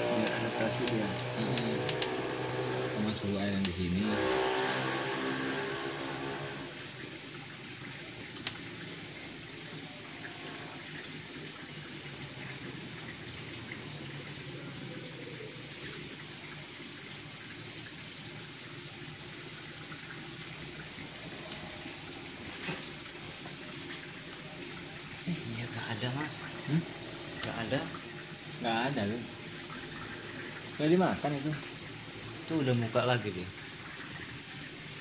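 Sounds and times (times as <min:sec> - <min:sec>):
faint high whine: 0:00.0 - 0:07.0
aquarium water rushing: 0:00.0 - 0:35.0.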